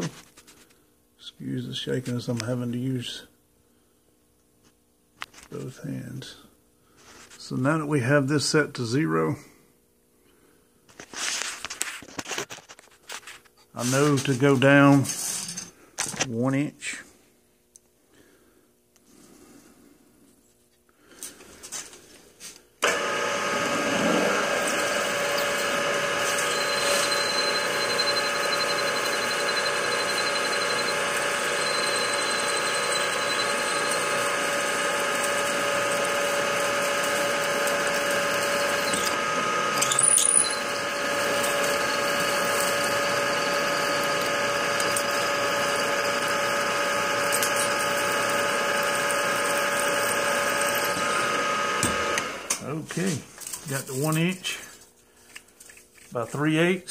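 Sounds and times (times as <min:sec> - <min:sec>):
milling machine spindle whine: 0:22.8 - 0:52.6
drill bit boring into aluminium: 0:23.6 - 0:52.0
high squeal: 0:39.8 - 0:44.2.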